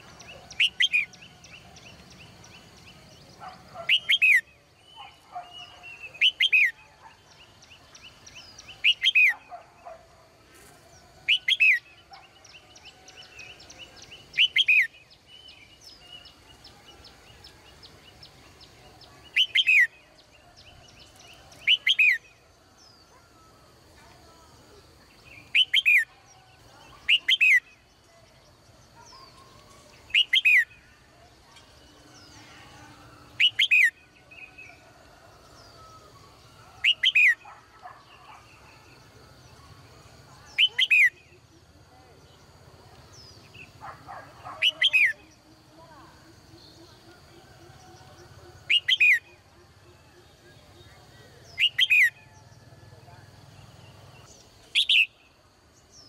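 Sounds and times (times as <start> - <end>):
bulbul calling: 0.0 - 10.0, 11.3 - 16.3, 19.1 - 20.1, 25.3 - 26.2, 26.9 - 27.8, 29.0 - 31.0, 33.4 - 34.5, 36.7 - 38.6, 48.5 - 49.6, 50.2 - 52.4, 53.8 - 55.3.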